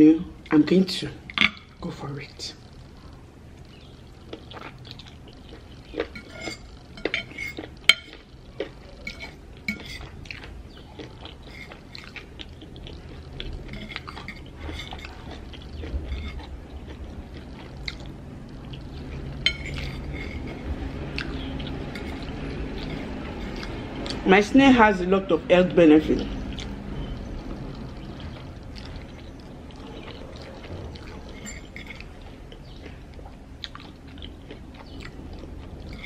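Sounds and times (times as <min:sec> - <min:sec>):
fork clinking on ceramic plate: 0:06.1 - 0:08.2, 0:09.0 - 0:10.1, 0:19.4 - 0:20.6, 0:31.3 - 0:32.1.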